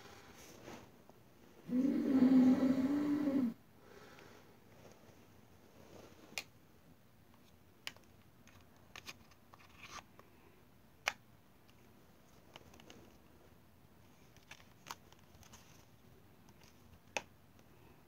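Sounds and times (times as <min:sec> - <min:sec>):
faint room noise: 0:00.0 - 0:18.0.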